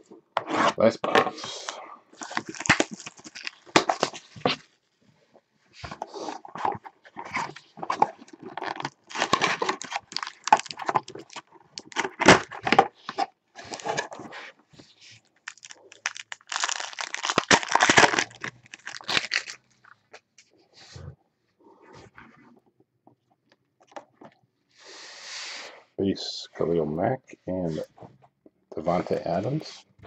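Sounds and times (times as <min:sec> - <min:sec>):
card pack wrapper crinkling: 0:02.2 - 0:04.4, 0:06.6 - 0:14.1, 0:15.4 - 0:20.2
cardboard box tearing: 0:02.2 - 0:04.4, 0:06.4 - 0:12.9, 0:15.5 - 0:19.5.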